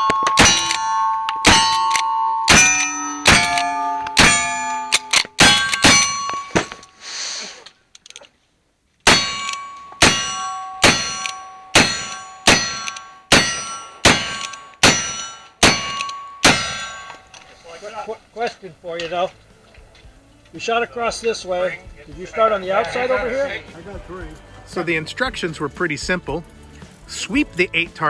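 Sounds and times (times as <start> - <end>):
rifle shots: 0.0 - 6.8, 9.1 - 17.2
steel target ringing: 0.0 - 6.9, 9.1 - 17.3.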